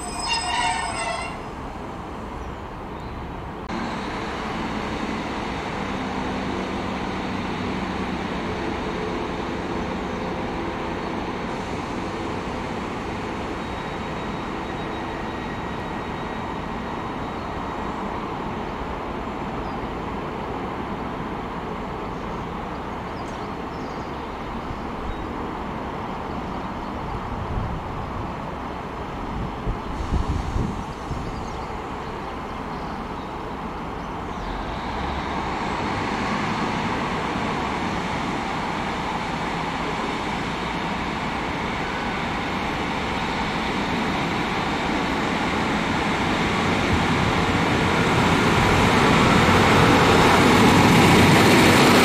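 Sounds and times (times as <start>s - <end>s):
diesel train engines idling: 0.0s - 52.0s
diesel train pulling away: 0.0s - 52.0s.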